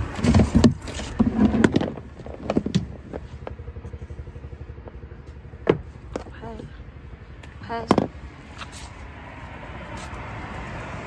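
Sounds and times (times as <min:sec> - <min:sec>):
plastic knocks and clatter: 0:00.1 - 0:03.2, 0:05.6 - 0:06.3, 0:07.8 - 0:08.2.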